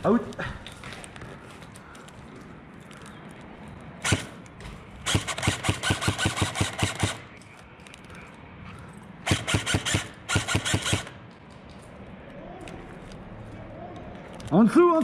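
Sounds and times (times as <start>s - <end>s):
airsoft gun rapid fire: 4.0s - 4.3s, 5.0s - 7.3s, 9.2s - 11.2s.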